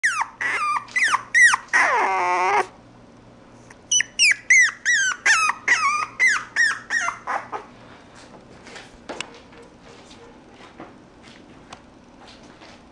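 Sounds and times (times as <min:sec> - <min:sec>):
puppy yipping and whining: 0:00.0 - 0:02.8, 0:03.8 - 0:07.8.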